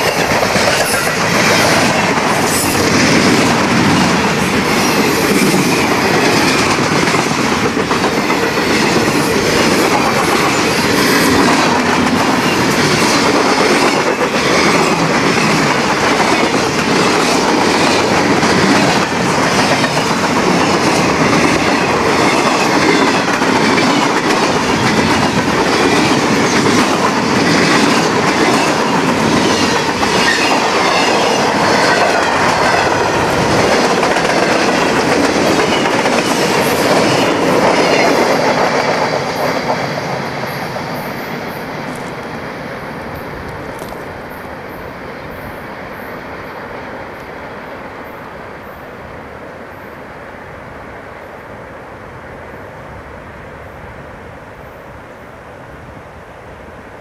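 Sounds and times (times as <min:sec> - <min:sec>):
wheels clacking over rail joints: 0:00.0 - 0:42.4
freight train rolling past: 0:00.0 - 0:57.0.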